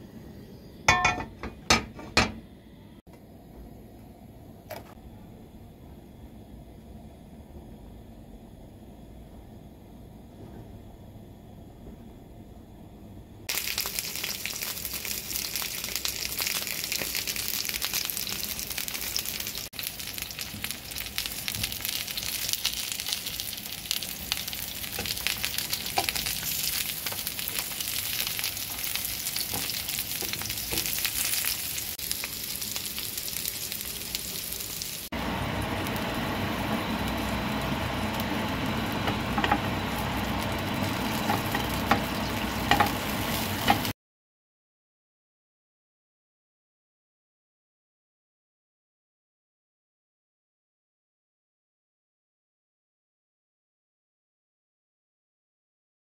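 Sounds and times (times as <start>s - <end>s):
eggplant sizzling in oil: 13.5s - 44.0s.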